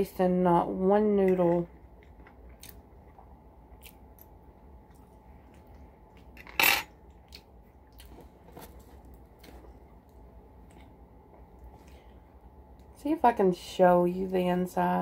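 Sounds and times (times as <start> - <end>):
metal fork clattering onto table: 6.4 - 6.9.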